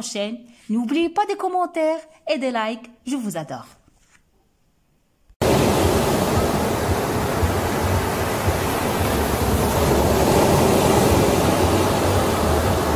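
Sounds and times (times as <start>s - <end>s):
low surf rumble: 5.4s - 12.9s
ocean waves breaking: 5.4s - 12.9s.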